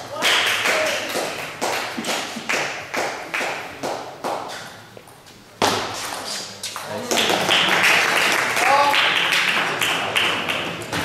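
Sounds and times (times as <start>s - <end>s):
sharp table tennis hit: 5.6s - 6.5s.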